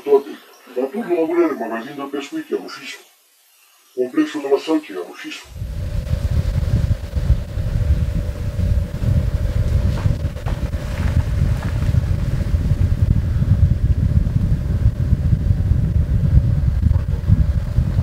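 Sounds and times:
mid-pitched hum: 0:05.5 - 0:18.0
vehicle engine rumbling: 0:05.5 - 0:18.0.

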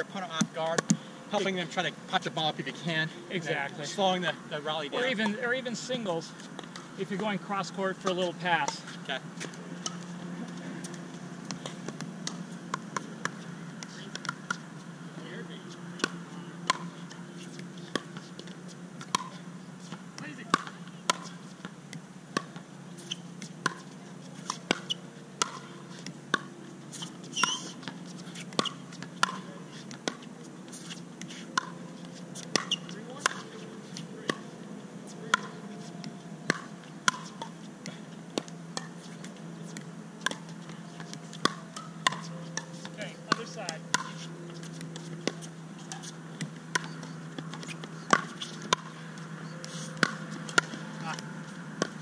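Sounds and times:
steady low hum: 0:00.0 - 0:52.0
paddles striking pickleball: 0:00.1 - 0:04.1, 0:04.9 - 0:14.8, 0:15.9 - 0:52.0
ball bouncing on hard court: 0:16.0 - 0:34.5, 0:35.1 - 0:52.0.

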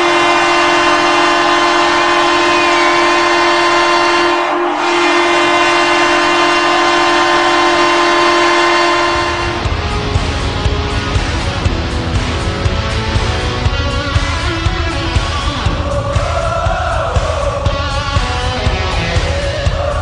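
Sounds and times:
goal horn blowing: 0:00.0 - 0:09.8
goal song music: 0:00.0 - 0:20.0.

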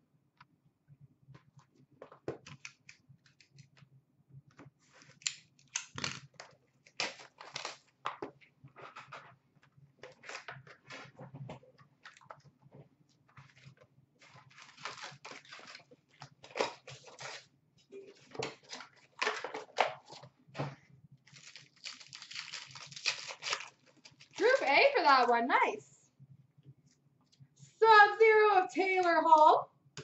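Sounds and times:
card pack wrappers crinkling and tearing: 0:05.0 - 0:08.1, 0:13.4 - 0:17.5, 0:21.3 - 0:25.3.

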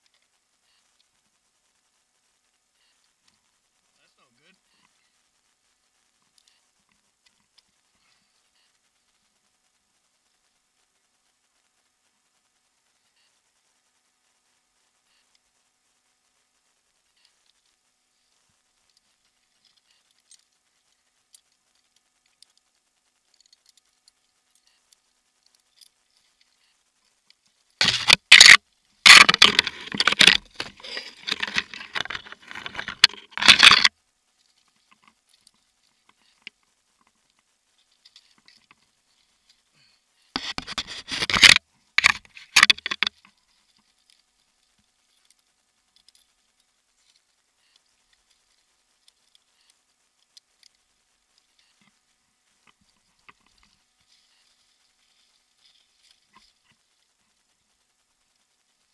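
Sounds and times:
carabiners jangling: 0:27.8 - 0:33.9
rope and clothing scraping: 0:29.1 - 0:33.8.

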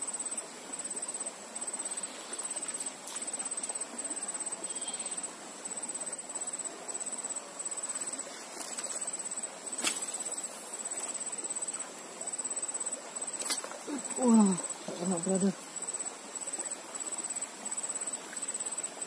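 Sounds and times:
insects trilling in rapid pulses: 0:00.0 - 0:19.0.

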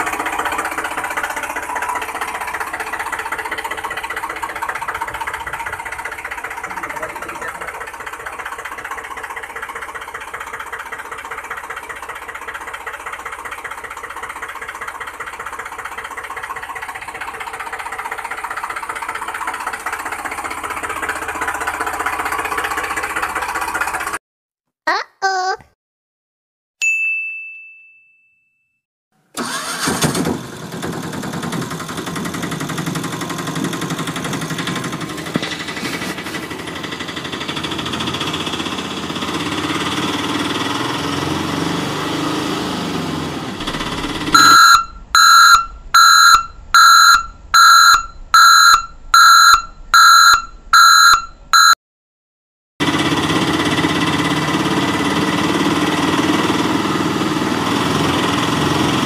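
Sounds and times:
engine running: 0:00.0 - 0:24.2, 0:29.4 - 0:51.7, 0:52.8 - 0:59.0
loud electronic beeps: 0:44.2 - 0:51.8.

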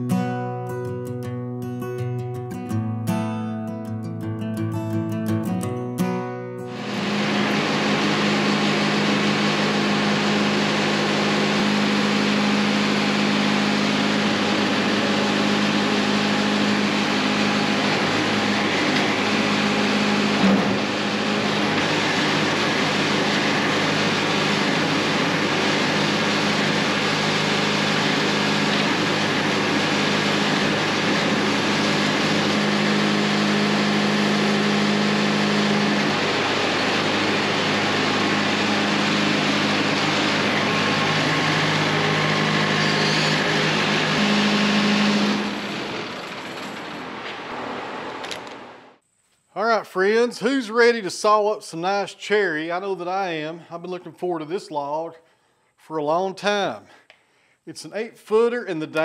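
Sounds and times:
engine running steadily: 0:06.6 - 0:49.0.

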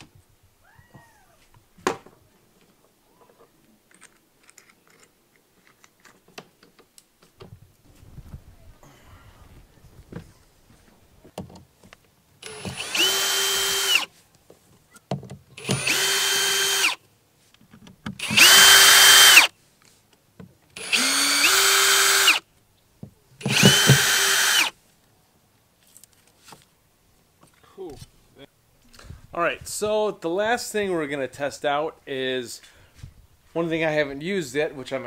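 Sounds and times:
cordless drill whirring: 0:12.4 - 0:14.1, 0:15.6 - 0:17.0, 0:18.2 - 0:19.5, 0:20.8 - 0:22.4, 0:23.4 - 0:24.7.

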